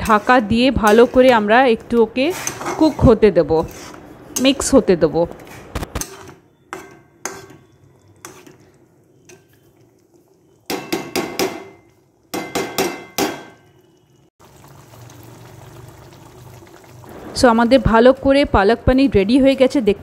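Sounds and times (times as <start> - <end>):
spatula scraping a pan: 0.0 - 4.7, 5.4 - 9.8.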